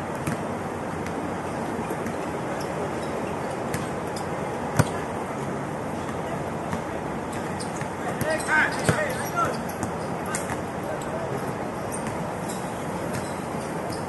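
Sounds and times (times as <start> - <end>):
city background hum: 0.0 - 14.0
basketball bouncing on hard court: 0.1 - 1.2, 3.7 - 3.9, 4.8 - 5.0, 6.0 - 10.6, 13.1 - 14.0.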